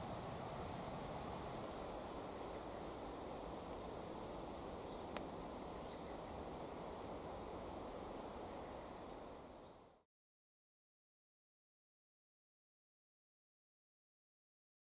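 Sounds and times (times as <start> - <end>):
outdoor background noise: 0.0 - 10.1.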